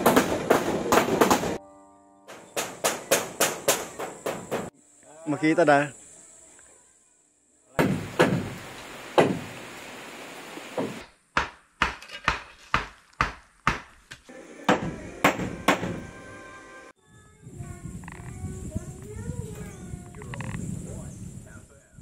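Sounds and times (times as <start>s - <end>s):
hard knocks: 7.8s - 8.6s, 10.8s - 13.9s, 14.7s - 16.0s.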